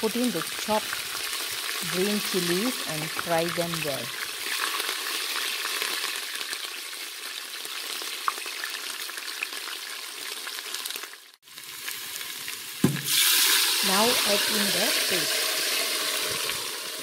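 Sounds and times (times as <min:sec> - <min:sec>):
chillies sizzling in hot oil: 0:00.0 - 0:17.0
sharp oil pops: 0:12.8 - 0:13.2.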